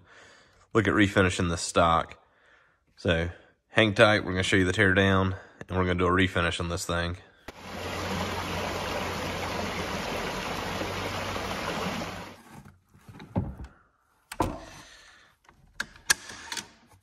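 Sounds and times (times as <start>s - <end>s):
stream running over rocks: 7.5s - 12.4s.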